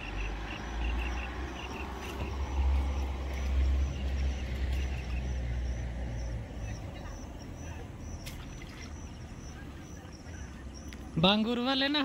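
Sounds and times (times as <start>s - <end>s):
water swishing through net: 8.1s - 9.9s.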